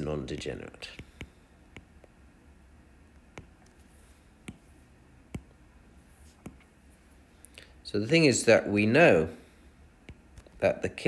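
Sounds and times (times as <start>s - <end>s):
low steady hum: 0.0s - 11.0s
stylus tapping on glass screen: 3.2s - 3.8s, 4.4s - 4.7s, 5.3s - 5.6s, 6.3s - 6.7s.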